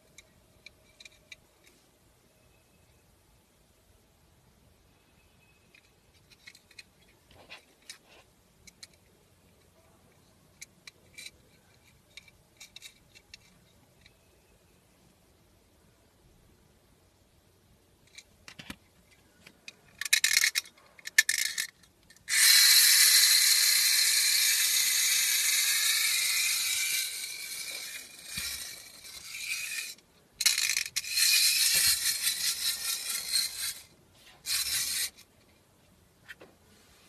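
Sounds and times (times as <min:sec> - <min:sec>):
ratcheting clicks of winding key: 0:19.7 - 0:33.9
clockwork whirr: 0:20.0 - 0:35.2.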